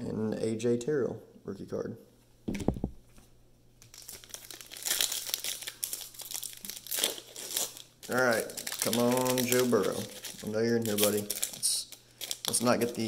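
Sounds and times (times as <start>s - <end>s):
plastic wrapper crinkling and tearing: 3.8s - 13.0s.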